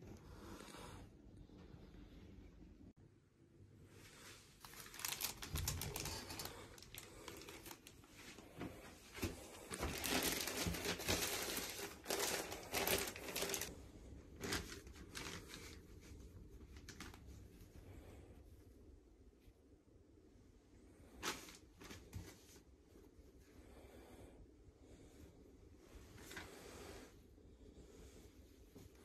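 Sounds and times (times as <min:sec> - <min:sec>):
plastic bag crinkling: 0:04.6 - 0:08.1, 0:09.2 - 0:13.8, 0:14.4 - 0:15.8.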